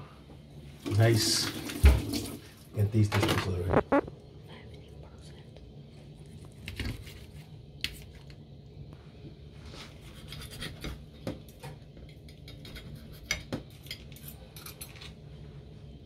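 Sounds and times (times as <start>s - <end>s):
knife and fork scraping a plate: 10.0s - 11.1s, 12.1s - 15.1s.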